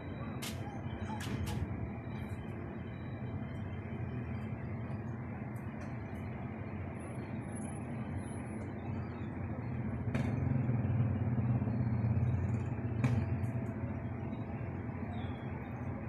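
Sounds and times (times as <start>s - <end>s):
motor vehicle engines rumbling: 0.0s - 16.0s.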